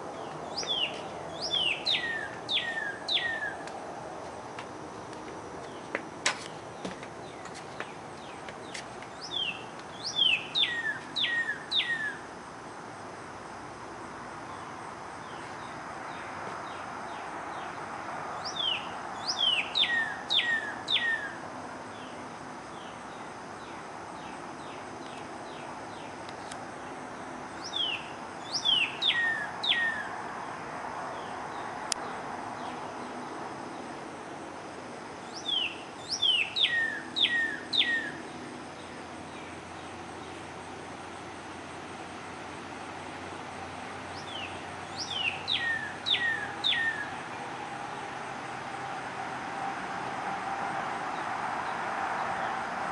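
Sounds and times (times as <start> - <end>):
cardinal whistling song: 0.2 - 3.7, 9.2 - 12.2, 18.4 - 21.4, 27.6 - 30.1, 35.3 - 38.2, 44.1 - 47.2.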